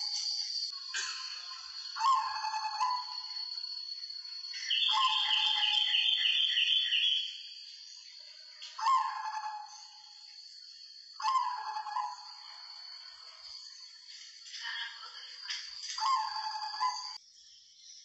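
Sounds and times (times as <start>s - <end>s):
dove cooing: 11.2s - 12.2s.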